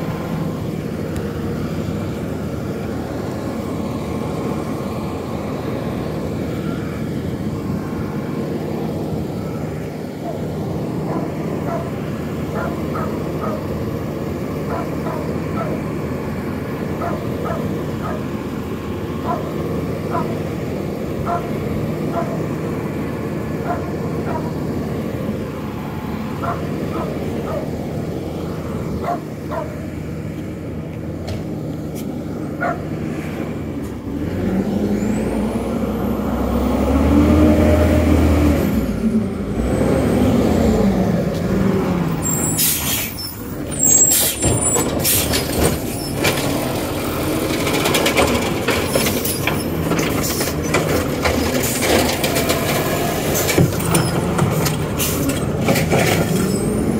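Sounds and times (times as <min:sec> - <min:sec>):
garbage truck engine revving: 0:00.0 - 0:56.9
air brake hisses: 0:42.4 - 0:43.2, 0:43.9 - 0:45.4.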